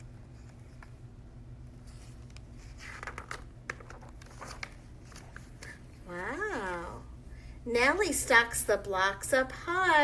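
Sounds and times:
low room hum: 0.0 - 10.0
paper pages rustling: 1.8 - 5.8
soft page clicks: 2.0 - 5.8.

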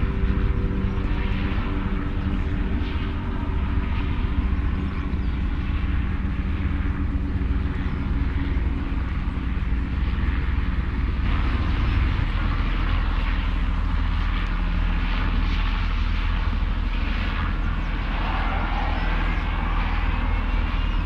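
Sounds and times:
jet bomber rumbling overhead: 0.0 - 21.0
low droning tones: 0.0 - 21.0
rushing roar: 17.8 - 21.0.

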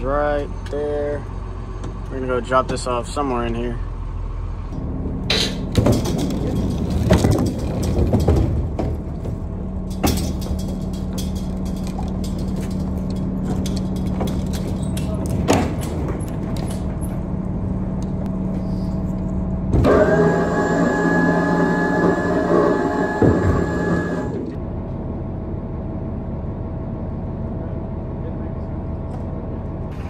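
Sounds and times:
steady low hum: 0.0 - 30.0
pallet jack clanking on steel: 5.2 - 17.4.

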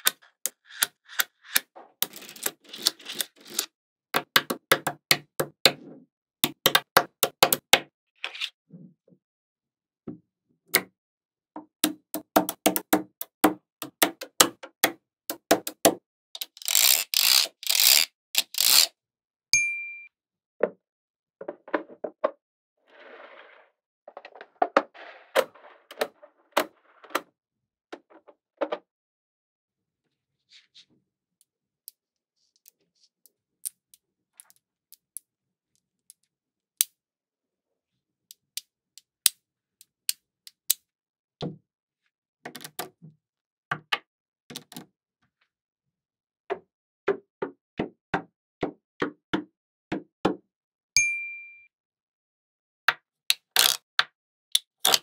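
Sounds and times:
ringing ding: 19.6 - 20.1, 51.0 - 51.7.

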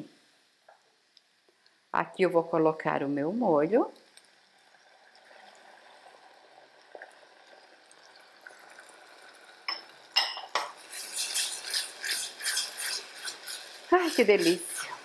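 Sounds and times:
sauce pouring into saucepan: 4.0 - 15.0
clink against pan: 9.7 - 10.7
spatula scraping in pan: 10.6 - 15.0.

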